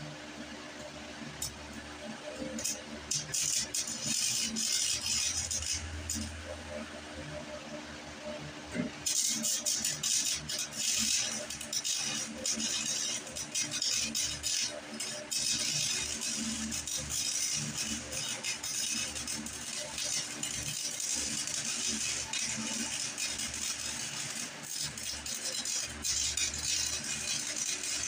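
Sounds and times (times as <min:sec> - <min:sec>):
welding arc crackling: 0:02.3 - 0:06.7, 0:09.0 - 0:28.0.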